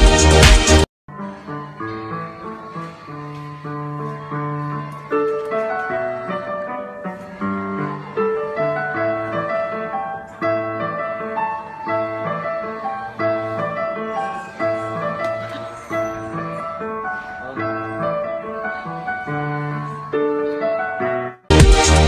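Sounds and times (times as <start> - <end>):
digital piano playing: 0.0 - 22.0.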